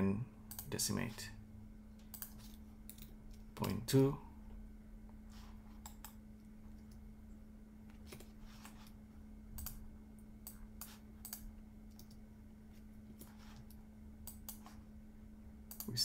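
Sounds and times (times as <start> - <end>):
low electrical hum: 0.0 - 16.0
keyboard and mouse clicks: 2.0 - 3.8, 5.8 - 7.0, 9.6 - 9.8, 10.4 - 12.2, 13.2 - 14.8, 15.7 - 16.0.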